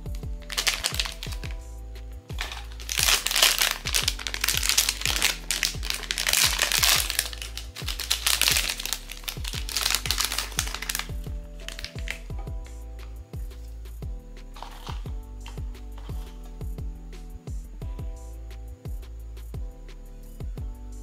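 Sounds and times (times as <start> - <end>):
background music with bass beat: 0.0 - 21.0
packaging crinkling: 0.5 - 1.5, 2.4 - 12.2, 14.6 - 15.0.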